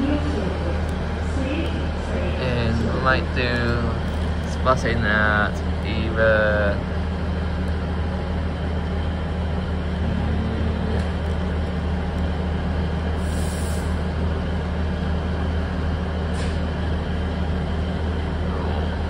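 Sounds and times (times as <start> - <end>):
vehicle mechanical drone: 0.0 - 19.0
brief hiss: 13.2 - 14.0.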